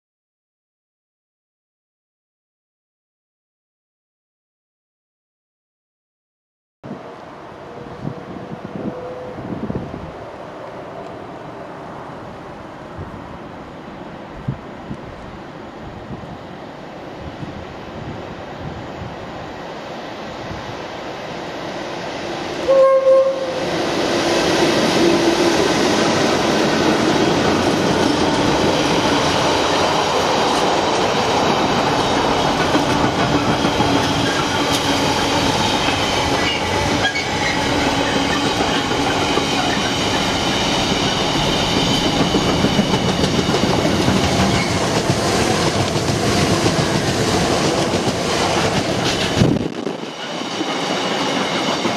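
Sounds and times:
passenger train passing: 6.9s - 51.9s
train horn blast: 7.7s - 9.8s, 22.6s - 25.7s
freight wagons clickety-clack: 41.0s - 51.9s.

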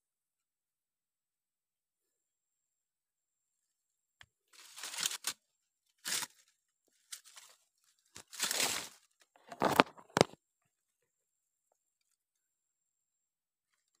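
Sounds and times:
stick scraping through wet mud: 4.6s - 5.3s, 6.0s - 6.4s.

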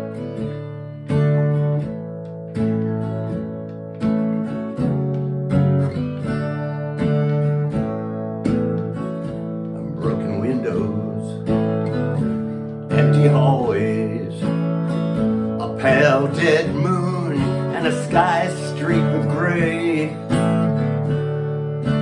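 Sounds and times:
acoustic guitar chords: 0.0s - 22.0s
man singing a slow ballad: 9.8s - 11.8s, 12.9s - 20.6s.

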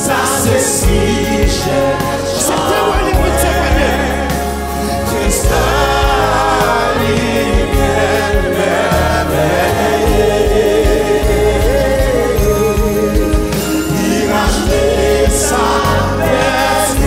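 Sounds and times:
group singing worship song: 0.0s - 17.0s
low accompaniment with beat: 0.0s - 17.0s.

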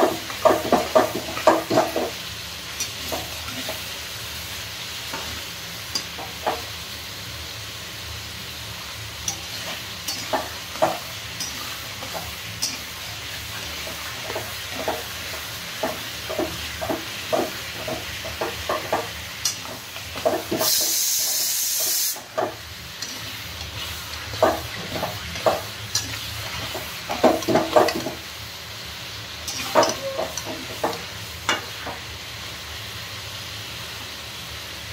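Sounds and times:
spatula scraping and knocking pan: 0.0s - 4.0s, 5.1s - 6.7s, 9.2s - 28.3s, 29.5s - 32.1s
chicken sizzling in a pan: 0.0s - 34.9s
loud hiss: 18.9s - 27.2s.

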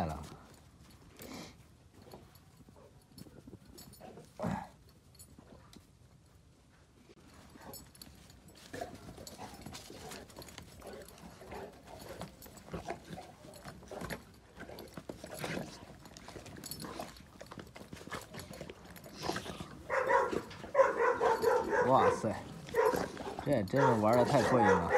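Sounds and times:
dogs scuffling: 7.1s - 24.9s
dog vocal noises: 8.6s - 24.9s.

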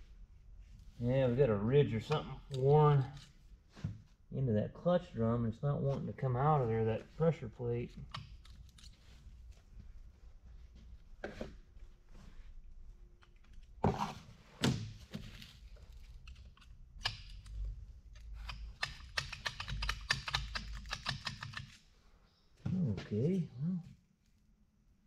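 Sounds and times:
pry tool clicking on metal: 18.4s - 21.7s.

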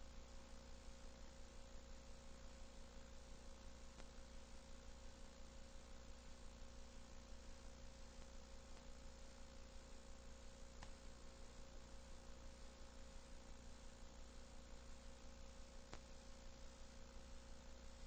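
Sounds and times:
low electrical hum: 0.0s - 18.0s
faint tick: 3.9s - 4.2s, 8.2s - 8.9s, 10.8s - 11.0s, 15.9s - 16.1s.

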